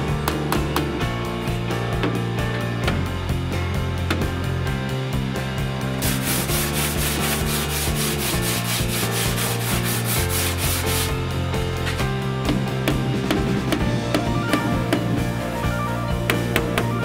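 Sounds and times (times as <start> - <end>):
background music with bass: 0.0 - 17.0
sanding car body panels: 6.0 - 11.2.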